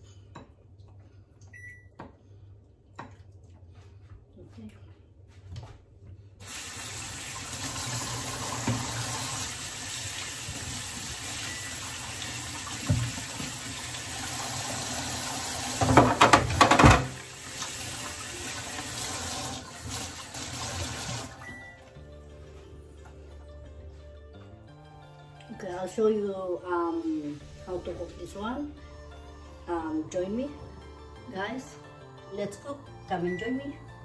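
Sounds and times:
tap running into sink: 7.6s - 9.4s, 12.2s - 14.9s, 15.6s - 21.3s.

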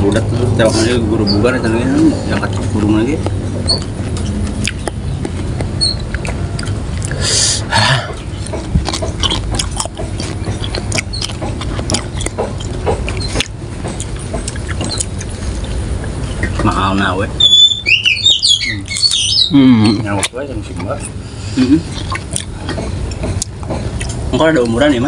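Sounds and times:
chewing and wet mouth smacks: 2.3s - 7.3s, 8.2s - 16.6s, 18.8s - 19.5s, 20.1s - 21.1s, 21.8s - 24.2s
mouth clicks: 2.3s - 16.7s, 17.5s - 24.2s
crunchy bites: 8.4s - 15.7s.

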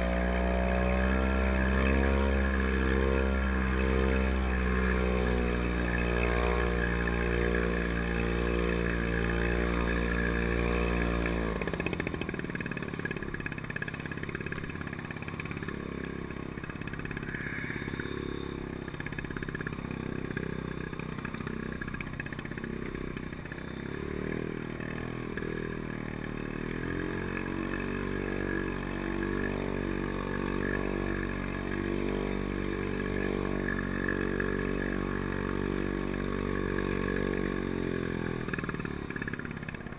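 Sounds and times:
two-stroke engine running: 0.0s - 39.9s.

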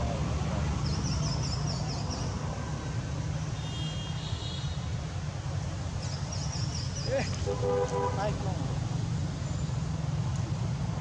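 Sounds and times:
bird chirping: 0.8s - 2.4s.

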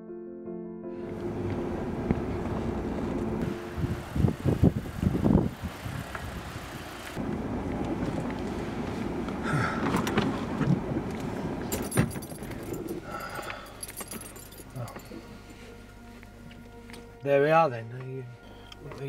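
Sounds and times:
low thumps: 1.0s - 6.3s
car engine and road noise: 1.0s - 17.4s.

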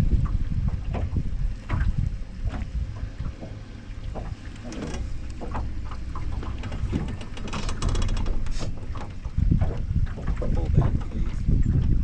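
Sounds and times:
steady low rumble: 0.0s - 12.0s
wind buffeting microphone: 0.0s - 12.0s
small knocks: 3.3s - 11.1s.

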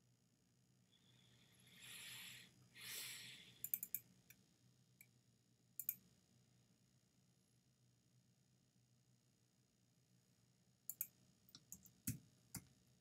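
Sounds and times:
computer mouse clicking: 3.6s - 4.4s, 5.8s - 6.0s, 10.9s - 12.7s.

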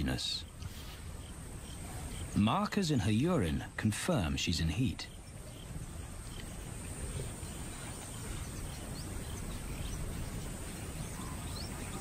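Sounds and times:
thin high hiss: 0.0s - 2.7s
faint bird chirps: 0.0s - 12.0s.

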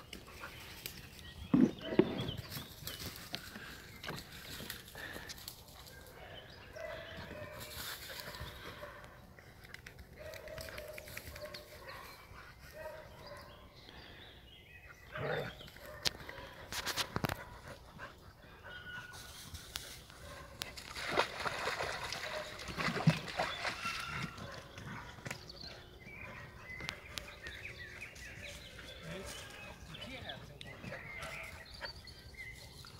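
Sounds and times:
dog splashing in water: 20.8s - 24.6s.

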